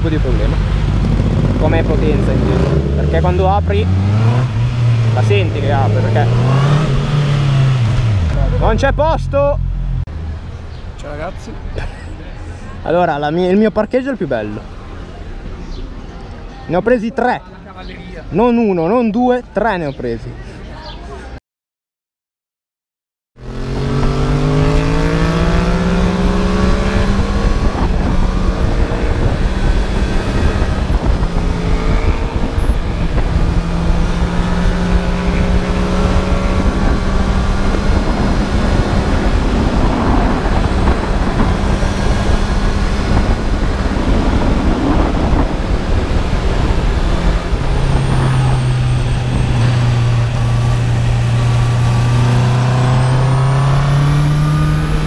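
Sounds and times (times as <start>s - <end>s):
wind rush: 0.0s - 8.4s, 23.5s - 55.0s
motorcycle engine revving: 0.0s - 10.1s, 23.4s - 55.0s.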